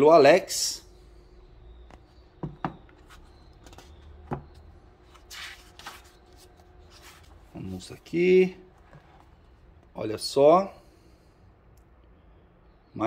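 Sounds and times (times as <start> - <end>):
book pages turning: 2.9 - 8.0.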